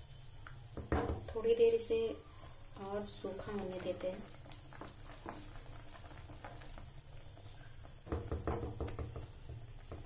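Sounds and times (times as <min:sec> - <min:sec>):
wooden spatula stirring in pan: 0:00.7 - 0:10.0
spatula knocking against pan: 0:08.1 - 0:10.0.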